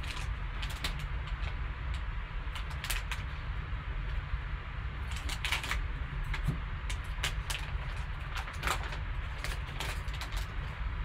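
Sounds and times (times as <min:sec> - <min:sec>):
foil wrapper crinkling: 0:00.0 - 0:01.6, 0:02.5 - 0:03.3, 0:05.0 - 0:10.7
steady low hum: 0:00.0 - 0:11.0.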